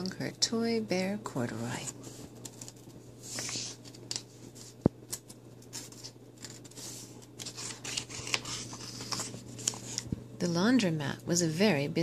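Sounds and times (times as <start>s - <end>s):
paper rustling page turning: 2.0s - 10.1s.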